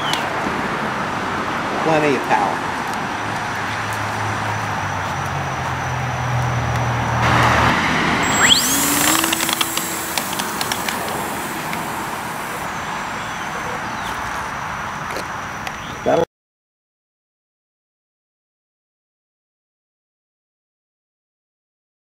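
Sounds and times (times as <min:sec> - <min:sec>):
scattered clicks: 0:08.2 - 0:12.5
model plane electric motor: 0:08.2 - 0:14.2.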